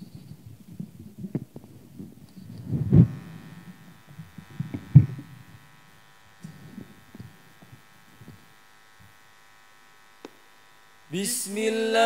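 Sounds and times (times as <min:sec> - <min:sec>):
microphone handling thumps: 0:00.0 - 0:09.2
electrical buzz from sound system: 0:00.0 - 0:12.0.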